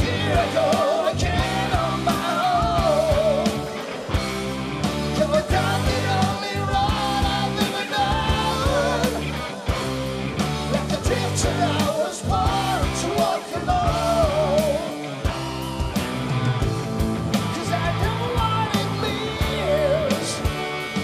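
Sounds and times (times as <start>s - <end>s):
man singing: 0.0s - 3.7s, 5.1s - 9.8s, 10.7s - 15.2s, 17.5s - 20.8s
bass guitar: 0.0s - 21.0s
drums beating: 0.0s - 21.0s
electric guitar: 0.0s - 21.0s.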